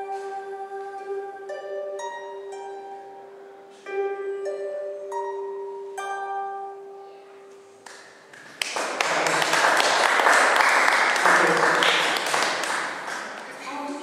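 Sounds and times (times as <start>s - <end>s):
harp notes ringing: 0.0s - 7.8s
audience applause: 8.4s - 13.7s.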